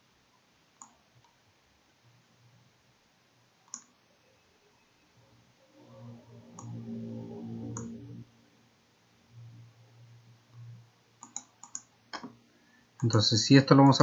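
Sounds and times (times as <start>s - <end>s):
low steady hum: 0.0s - 14.0s
computer mouse clicks: 0.8s - 1.4s, 3.6s - 4.0s, 6.6s - 6.8s, 7.7s - 8.0s, 11.2s - 12.4s.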